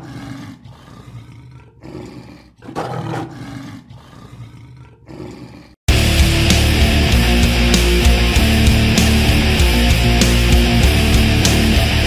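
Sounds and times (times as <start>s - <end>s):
lion roaring: 0.0s - 5.8s
heavy rock music: 5.9s - 12.0s.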